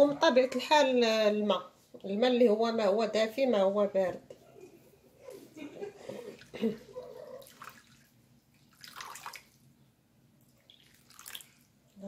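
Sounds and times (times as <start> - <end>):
water pouring and splashing: 7.4 - 9.6, 10.5 - 11.7.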